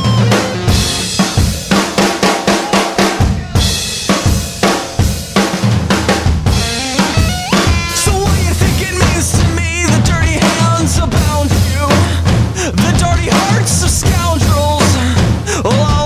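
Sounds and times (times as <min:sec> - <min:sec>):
pitched guitar or keyboard lines: 0:00.0 - 0:01.7, 0:06.3 - 0:11.9
drum kit: 0:00.0 - 0:16.0
noise rock band playing: 0:00.0 - 0:16.0.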